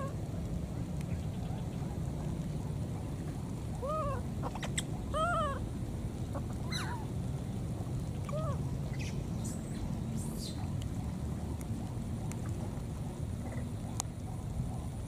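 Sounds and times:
baby monkeys cooing: 3.7 - 5.6, 6.4 - 7.1, 8.3 - 9.1.

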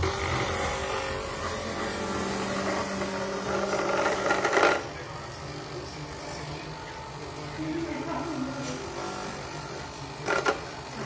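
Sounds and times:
coconut grinding against drum: 0.0 - 5.0, 10.2 - 11.0
grater motor humming: 0.0 - 11.0.

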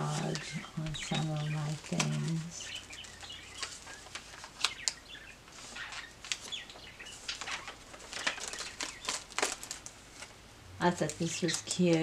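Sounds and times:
paper pages rustling and turning: 0.0 - 12.0.

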